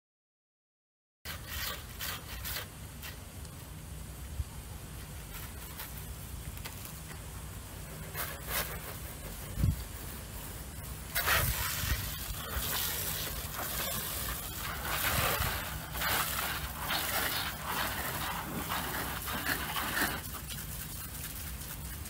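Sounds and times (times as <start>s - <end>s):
pressure washer spraying water: 8.0s - 22.0s.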